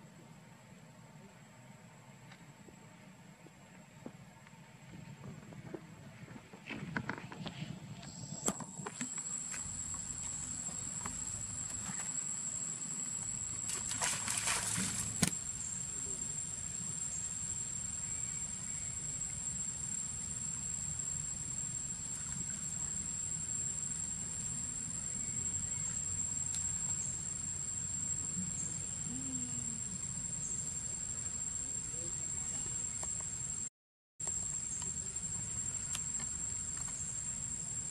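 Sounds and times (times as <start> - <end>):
high-pitched insect drone: 8.0 - 37.9.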